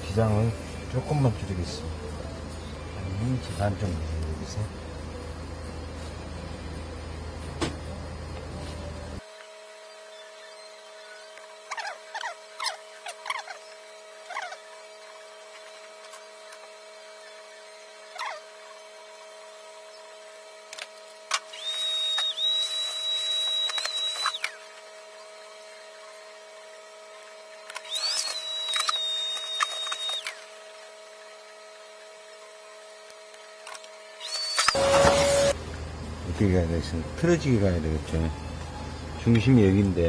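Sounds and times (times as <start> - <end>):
thin high whine: 0.0 - 40.0
shears cutting fabric: 8.6 - 35.6.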